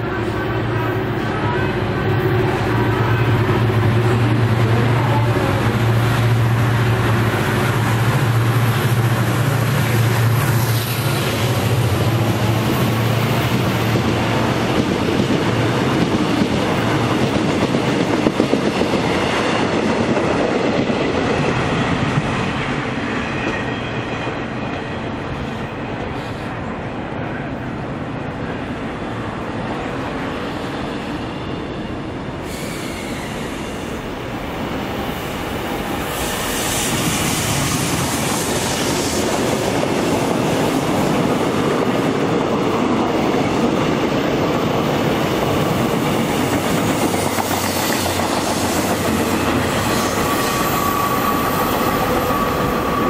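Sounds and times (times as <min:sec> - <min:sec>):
diesel locomotive engine drone: 0:00.0 - 0:53.0
train wheels squealing: 0:23.0 - 0:26.5, 0:30.4 - 0:34.1, 0:46.2 - 0:53.0.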